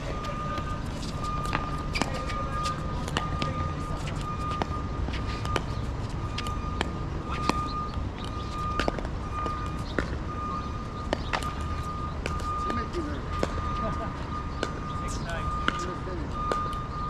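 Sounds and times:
ball bouncing on court: 0.0 - 14.9, 15.6 - 16.9
paddles striking pickleball: 11.0 - 11.6.

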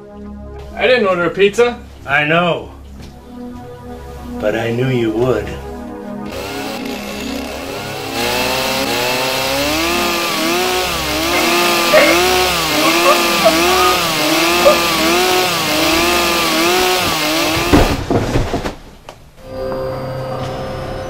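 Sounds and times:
chainsaw engine revving: 6.3 - 18.0.

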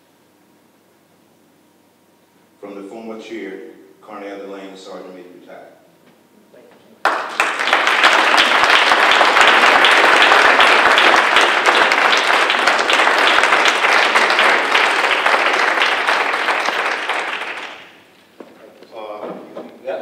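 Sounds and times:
audience applauding: 7.0 - 18.1.

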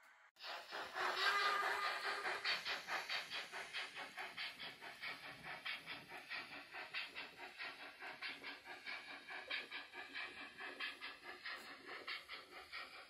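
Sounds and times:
steam locomotive chuffing: 0.4 - 13.0.

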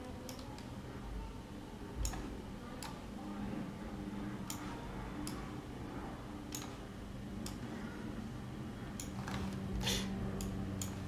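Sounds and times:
faint low hum: 0.0 - 11.0
computer mouse clicking: 0.1 - 0.7, 2.0 - 3.0, 4.4 - 5.6, 6.4 - 7.7, 8.9 - 11.0.

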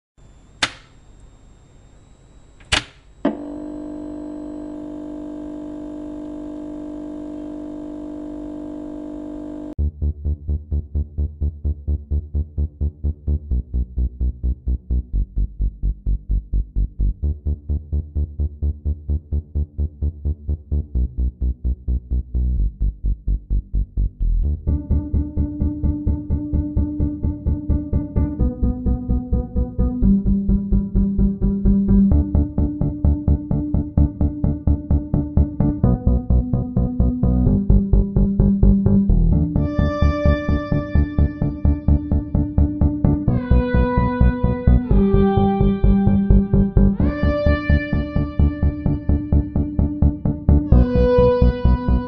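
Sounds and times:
electronic music: 22.6 - 52.0.

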